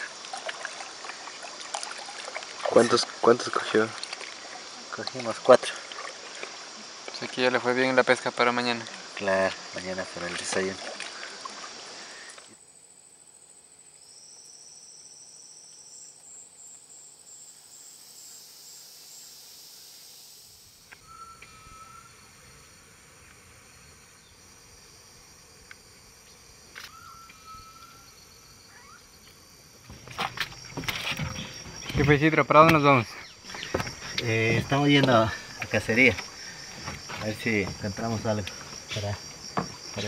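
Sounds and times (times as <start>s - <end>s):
insect buzzing call: 0.0s - 40.0s
insects trilling: 0.0s - 40.0s
pulsed insect call: 0.0s - 40.0s
whistled calls: 20.9s - 22.2s, 26.9s - 29.1s.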